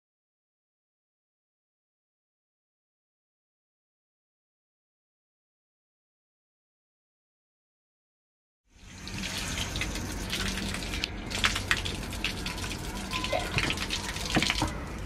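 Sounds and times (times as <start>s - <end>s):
tap water splashing on pavement: 9.2s - 14.8s.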